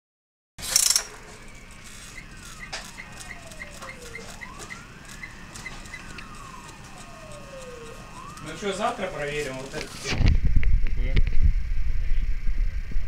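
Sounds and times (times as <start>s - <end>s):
high chirps: 1.0s - 8.8s
distant siren wailing: 1.0s - 10.2s.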